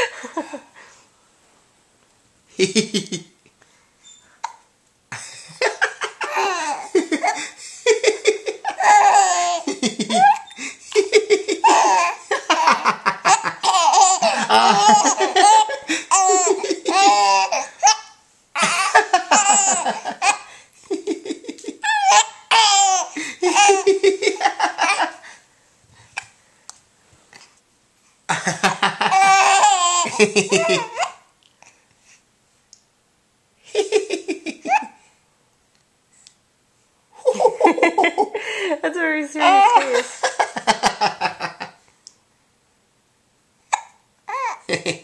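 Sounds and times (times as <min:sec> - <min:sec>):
baby laughing: 0:05.5 - 0:20.5, 0:21.1 - 0:25.2, 0:28.7 - 0:31.2, 0:33.8 - 0:35.0, 0:37.2 - 0:38.3, 0:39.4 - 0:41.0.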